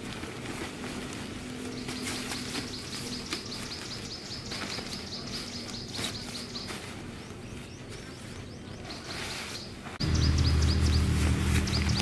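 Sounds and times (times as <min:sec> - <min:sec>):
tent fabric rustling: 0:00.0 - 0:07.7.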